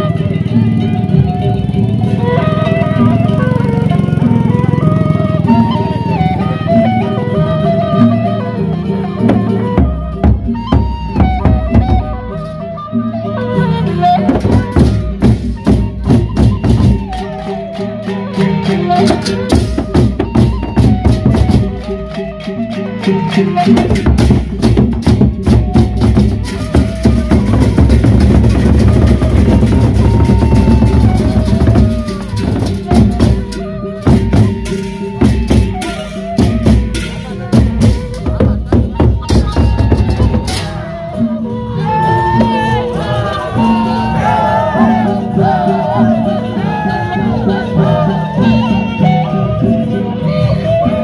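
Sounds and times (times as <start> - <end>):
wavering melodic tone: 0.0 - 51.0
clashing percussion: 13.4 - 51.0
barrel drums beaten rapidly: 14.2 - 17.2, 18.6 - 22.2, 23.6 - 41.0.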